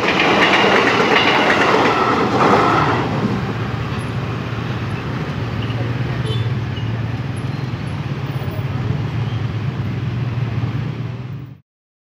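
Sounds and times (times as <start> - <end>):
street noise: 0.0 - 11.6
idling motorcycle and car engines: 4.0 - 11.6.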